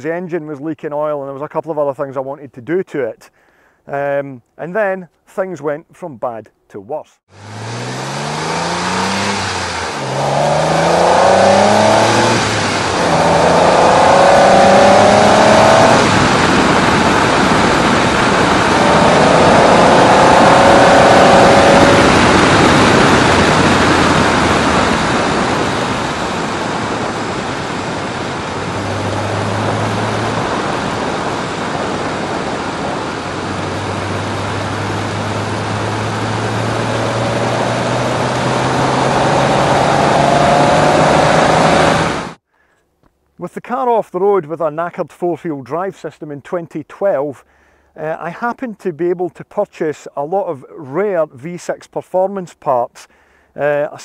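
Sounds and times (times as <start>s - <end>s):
car engine accelerating: 7.3s - 42.4s
tyre and wind noise: 8.5s - 42.4s.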